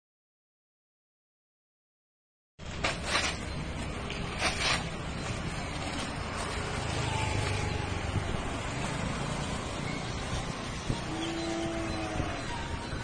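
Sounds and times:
road traffic rumble: 0:02.6 - 0:13.0
paper rustling and crumpling: 0:02.7 - 0:07.6.

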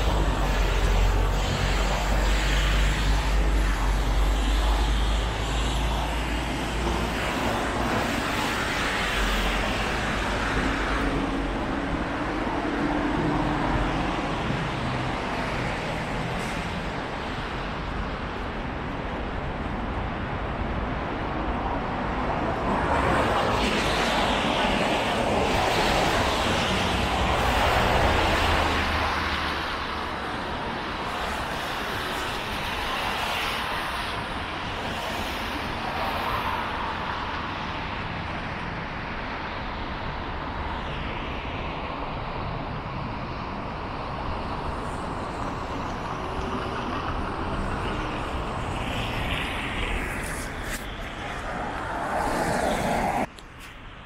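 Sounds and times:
hum of passing cars: 0:00.0 - 0:54.0
loud vehicle passing: 0:45.5 - 0:53.3.

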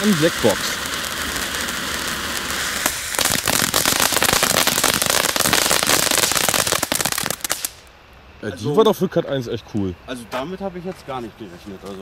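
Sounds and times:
firework fountain hissing: 0:00.0 - 0:07.9
firework rapid crackling: 0:00.0 - 0:07.9.

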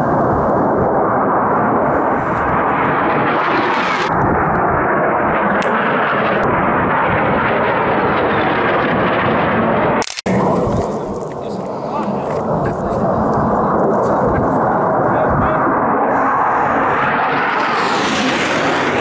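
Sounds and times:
jet flying low past: 0:00.0 - 0:19.0.

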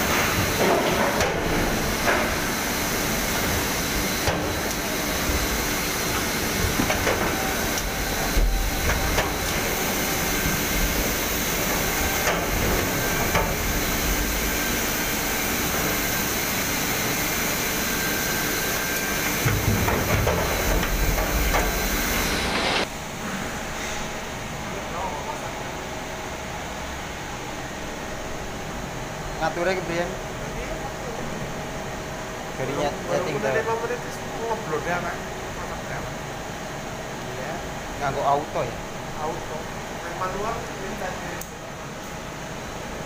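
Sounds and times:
conveyor running: 0:00.0 - 0:43.0.

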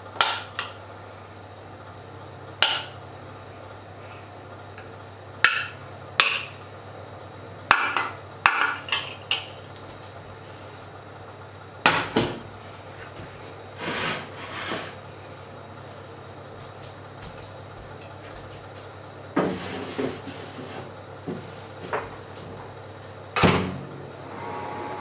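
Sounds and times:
metal tray sliding on worktop: 0:13.8 - 0:15.0, 0:19.4 - 0:20.9.

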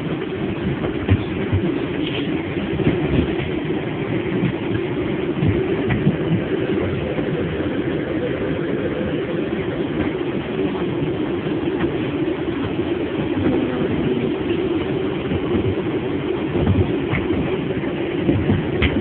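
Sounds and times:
subway car rumbling: 0:00.0 - 0:19.0.

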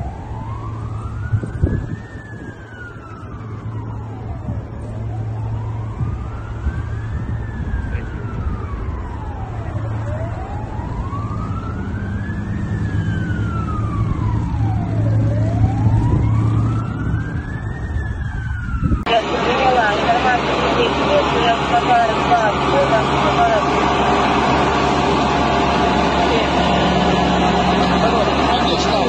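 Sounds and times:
emergency vehicle siren wailing: 0:00.0 - 0:29.0
low rumble of traffic: 0:00.0 - 0:29.0.

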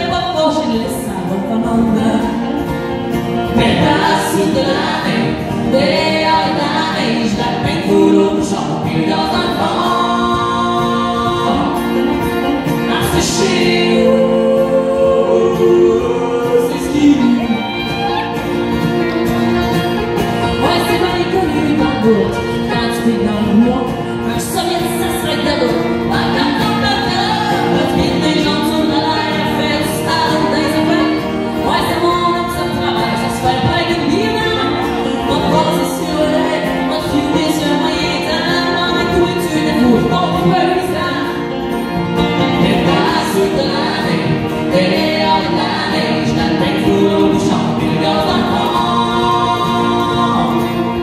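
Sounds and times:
woman singing: 0:00.0 - 0:02.6, 0:03.4 - 0:18.2, 0:20.4 - 0:51.0
picked banjo: 0:00.0 - 0:51.0
strummed acoustic guitar: 0:00.0 - 0:51.0.

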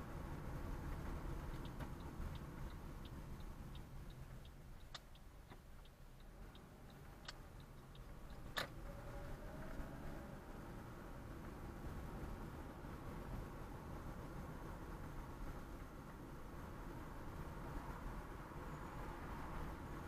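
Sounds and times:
road and engine rumble: 0:00.0 - 0:20.0
turn signal clicking: 0:00.6 - 0:10.4.

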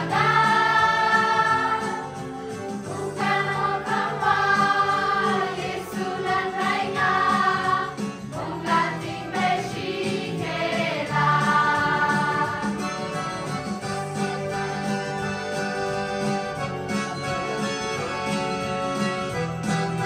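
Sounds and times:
group singing a carol: 0:00.0 - 0:13.3
acoustic guitar: 0:00.0 - 0:20.0.

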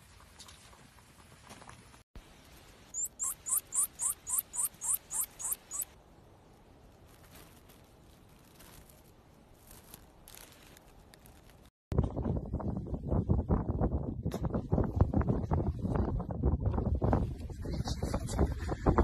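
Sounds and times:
small mammal squeaking: 0:03.0 - 0:05.9.

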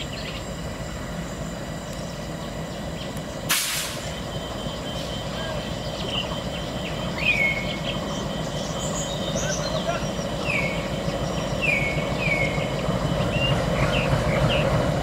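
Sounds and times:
diesel locomotive engine humming: 0:00.0 - 0:15.0
short loud hiss: 0:03.5 - 0:04.2.

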